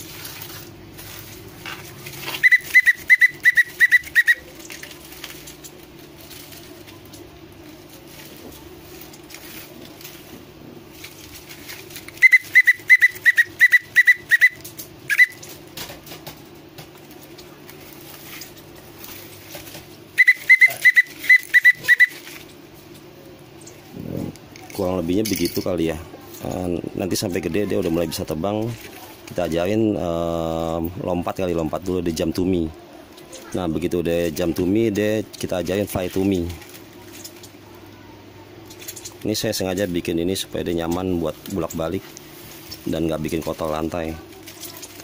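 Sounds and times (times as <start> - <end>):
steady low hum: 0.0 - 45.0
whistle short quick pips: 2.4 - 4.4, 12.2 - 15.4, 20.2 - 22.2.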